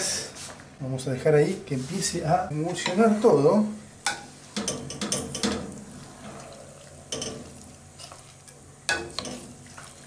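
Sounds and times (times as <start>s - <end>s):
low sizzle: 0.0s - 10.0s
wooden spoon stirring meat in pot: 4.1s - 10.0s.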